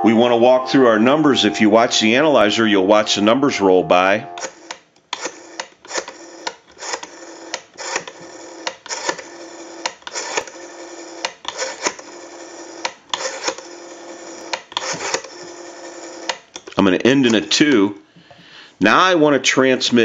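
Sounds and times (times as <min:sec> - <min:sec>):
steady telephone tone: 0:00.0 - 0:04.7
dial-pulse clicks: 0:04.2 - 0:16.4
rotary dial spinning back: 0:04.4 - 0:16.7.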